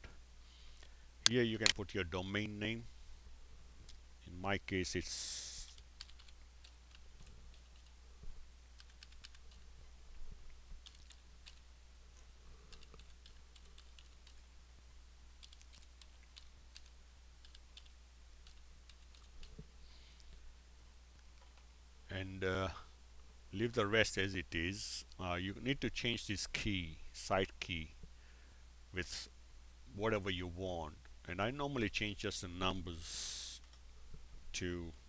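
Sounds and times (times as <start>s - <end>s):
steady low hum: 0.0s - 35.0s
computer keyboard typing: 5.6s - 7.9s, 8.8s - 9.6s, 10.8s - 11.6s, 12.7s - 14.4s, 15.4s - 19.6s.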